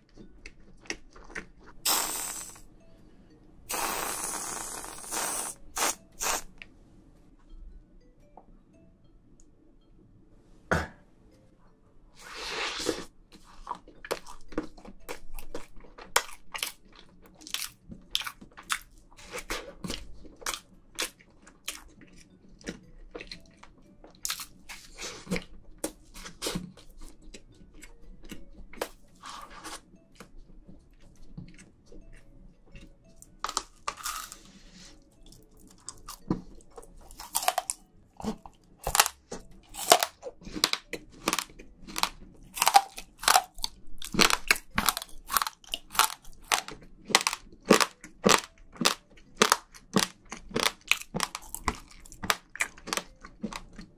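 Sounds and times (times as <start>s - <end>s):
crunchy chewing: 12.8s - 53.9s.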